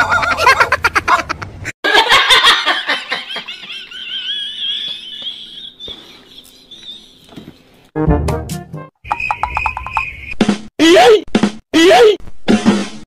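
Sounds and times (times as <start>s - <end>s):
woman laughing: 0.0s - 6.8s.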